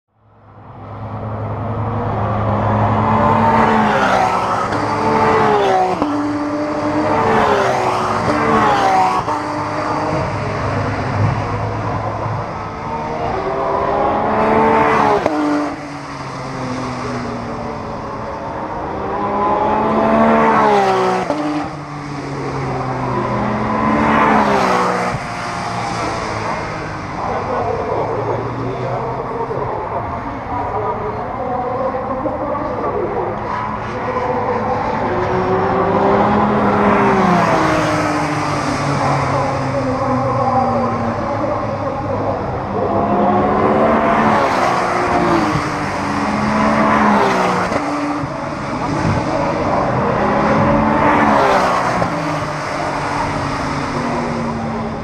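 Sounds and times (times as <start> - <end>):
race cars accelerating past: 0.4 - 55.0.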